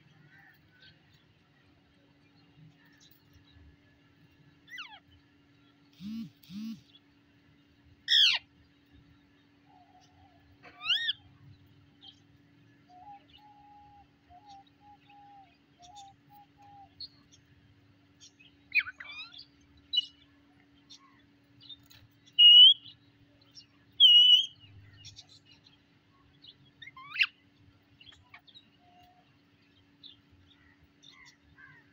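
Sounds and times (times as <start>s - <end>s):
parakeet calls: 4.7s - 5.0s, 6.0s - 7.0s, 8.1s - 8.5s, 10.7s - 11.3s, 26.8s - 27.4s.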